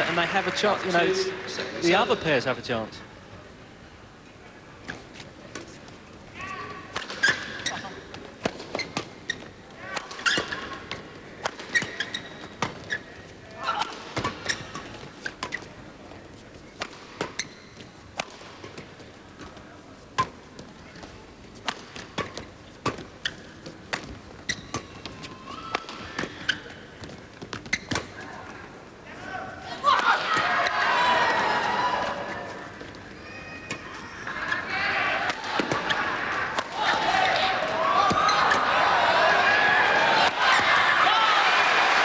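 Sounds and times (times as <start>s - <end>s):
rackets hitting shuttlecock: 6.9s - 13.0s, 16.8s - 18.9s, 21.0s - 28.2s, 34.5s - 38.7s.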